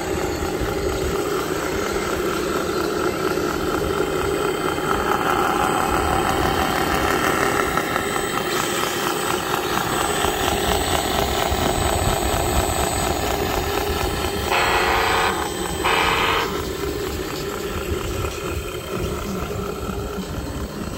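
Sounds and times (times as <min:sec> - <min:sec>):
mechanical whine and hum: 0:00.0 - 0:20.9
short loud buzzes: 0:14.5 - 0:16.8.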